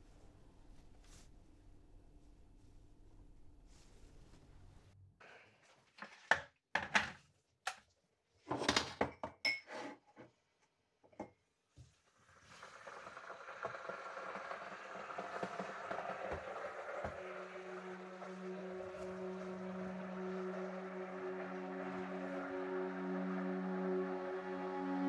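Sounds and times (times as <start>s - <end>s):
kettle and mugs clattering: 12.5s - 22.5s
kettle heating hiss: 12.5s - 25.0s.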